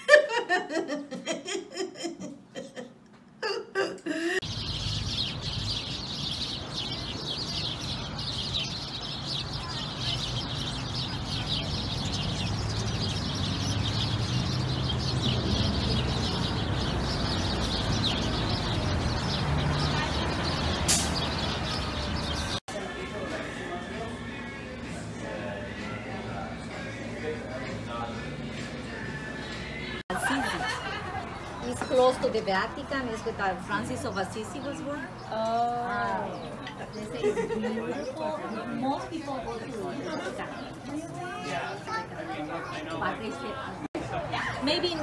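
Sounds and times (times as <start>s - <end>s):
voices and laughter: 0.0s - 4.5s, 30.0s - 33.9s, 35.0s - 45.0s
small birds chirping: 4.4s - 22.7s, 25.6s - 45.0s.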